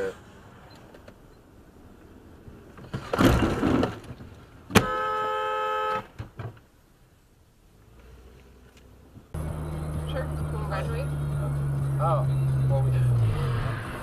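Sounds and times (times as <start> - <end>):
car horn blast: 4.7 - 6.2.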